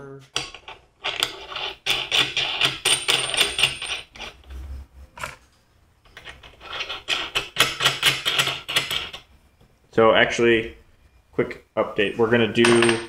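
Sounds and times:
metal bolts clinking on steel: 12.6 - 13.0.

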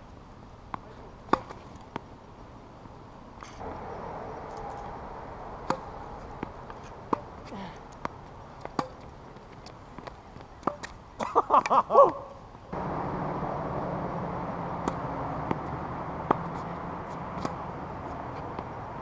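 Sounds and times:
tennis ball hits and bounces: 0.7 - 2.2, 4.5 - 11.8, 14.7 - 19.0
person shouting: 11.9 - 12.3
steady rushing noise: 12.6 - 19.0.

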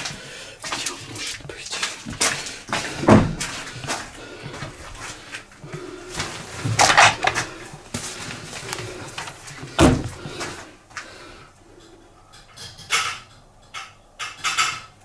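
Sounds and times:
heavy thud: 3.0 - 3.4, 9.8 - 10.2
objects knocking and clattering: 6.6 - 7.5, 11.8 - 15.0.

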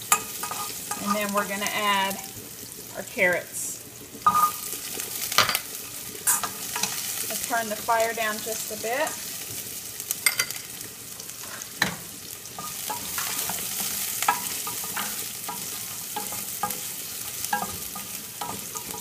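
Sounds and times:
vegetables sizzling in oil: 0.0 - 19.0
utensil scraping metal pan: 0.1 - 1.6.

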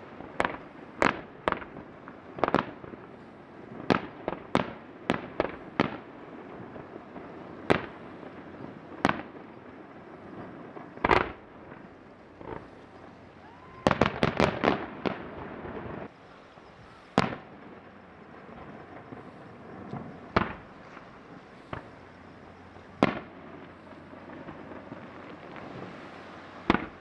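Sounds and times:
firework bangs: 0.0 - 27.0
faint firework pops: 10.4 - 11.8, 17.1 - 17.6, 18.6 - 22.1, 26.6 - 27.0.

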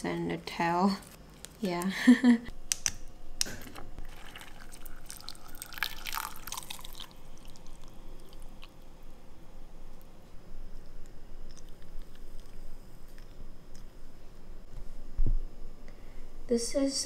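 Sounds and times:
water pouring into a glass: 4.0 - 8.4.

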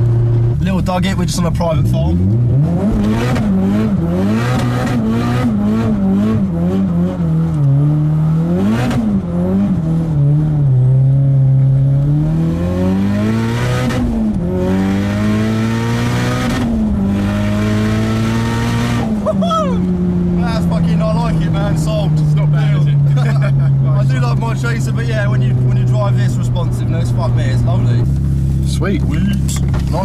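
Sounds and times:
car engine revving through gears: 1.4 - 30.0.

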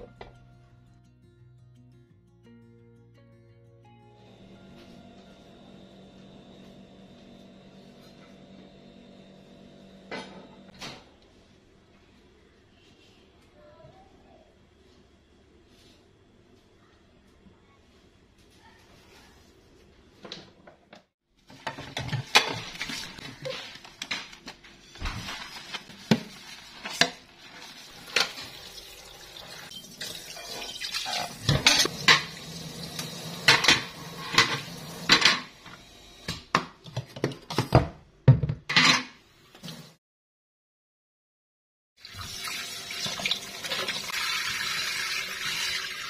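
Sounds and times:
dishes clinking in a sink: 29.8 - 32.4.

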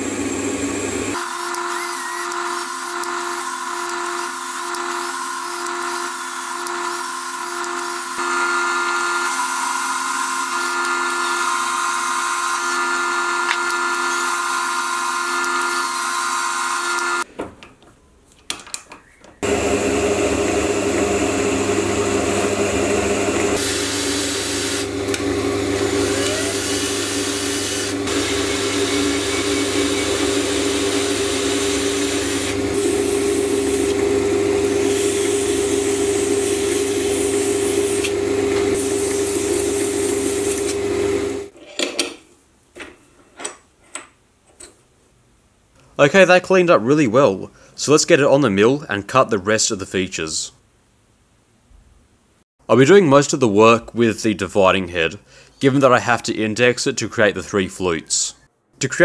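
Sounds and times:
metal lathe humming: 0.0 - 17.2, 19.4 - 41.5.

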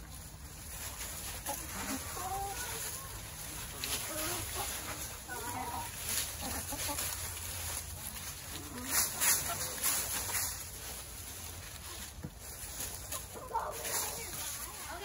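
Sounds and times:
dry leaves rustling: 0.0 - 15.0
hens clucking: 0.0 - 15.0.

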